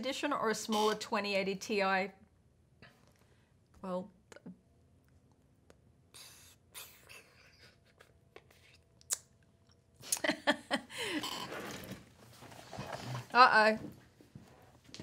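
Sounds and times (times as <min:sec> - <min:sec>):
gaming chair creak: 0:11.2 - 0:13.4.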